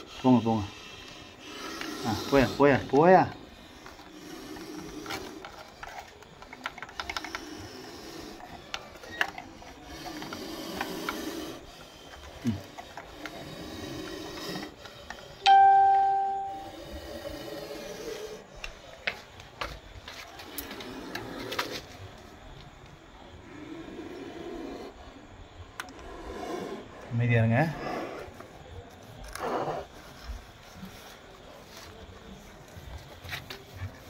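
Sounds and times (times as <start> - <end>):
bell-like chime: 15.5 - 16.7.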